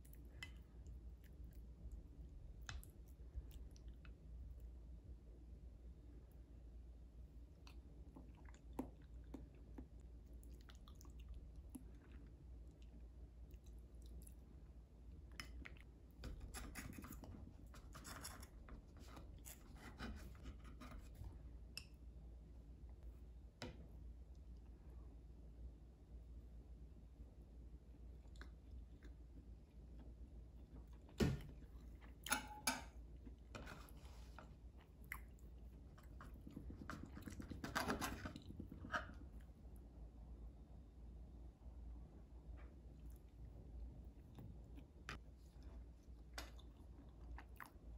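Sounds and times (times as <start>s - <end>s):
cutlery clinking: 32.2s - 33.0s.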